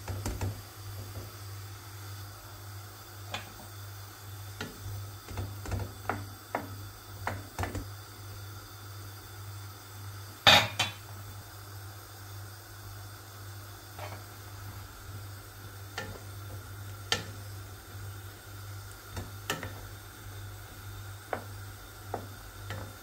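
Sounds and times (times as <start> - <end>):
meat simmering: 0.0 - 23.0
wooden spoon scraping pot: 14.0 - 14.4.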